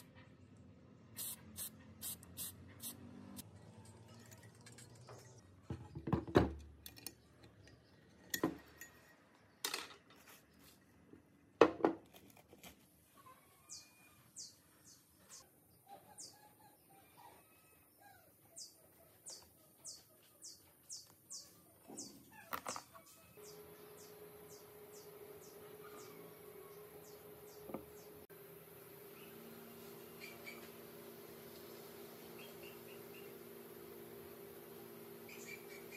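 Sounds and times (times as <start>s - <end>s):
bird chirping: 13.3s - 28.3s, 29.1s - 30.8s, 32.3s - 33.4s, 35.2s - 35.9s.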